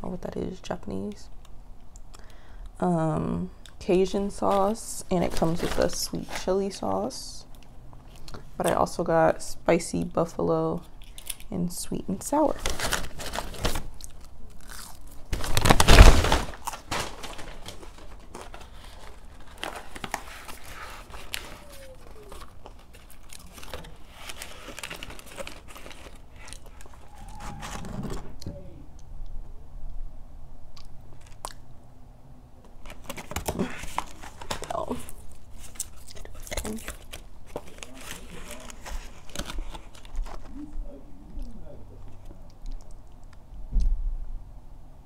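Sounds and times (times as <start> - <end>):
cardboard and paper crinkling: 4.4 - 6.7, 12.2 - 28.4, 32.7 - 40.6
chewing fries: 13.9 - 15.4, 17.7 - 27.3, 34.8 - 40.6, 41.3 - 43.5.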